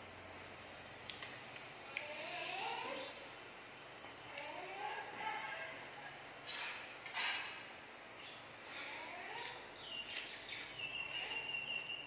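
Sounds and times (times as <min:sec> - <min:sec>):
insect trilling: 0:02.0 - 0:03.3
birds chirping: 0:08.1 - 0:12.0.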